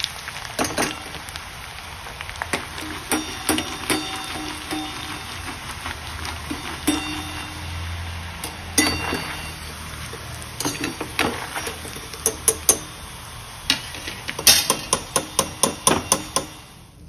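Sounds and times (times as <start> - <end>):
frying oil bubbling: 0.0 - 17.0
metal spoon clinking on metal pan: 2.8 - 5.6, 6.4 - 13.0.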